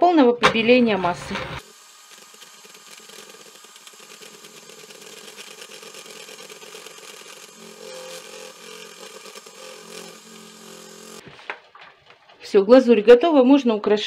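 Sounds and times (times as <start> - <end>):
electric hand mixer running: 0.7 - 11.2.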